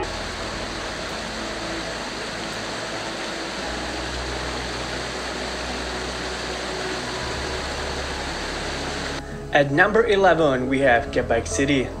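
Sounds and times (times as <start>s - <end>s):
waterfall rushing: 0.0s - 9.2s.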